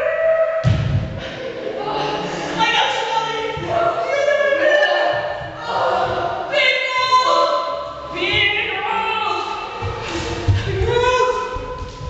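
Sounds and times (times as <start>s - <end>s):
choir singing long notes: 1.2s - 2.8s.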